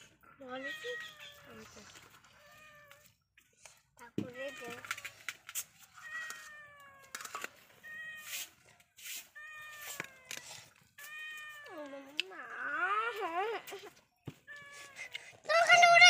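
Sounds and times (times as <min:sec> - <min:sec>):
cat meowing: 0:02.4 - 0:03.1, 0:06.0 - 0:08.5.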